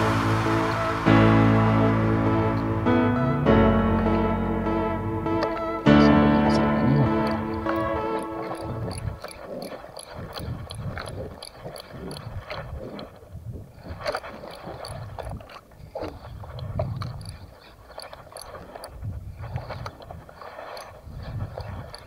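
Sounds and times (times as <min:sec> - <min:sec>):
faint regular ticking: 0:07.1 - 0:12.6, 0:17.0 - 0:19.0, 0:19.8 - 0:22.0.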